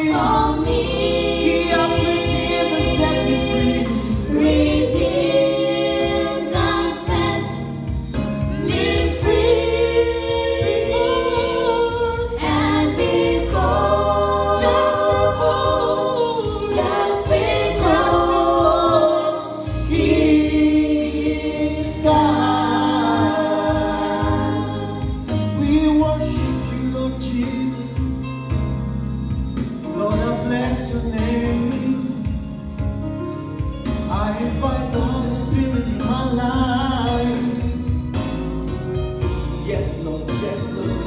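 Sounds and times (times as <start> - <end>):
girls singing gospel song: 0.0 - 25.3.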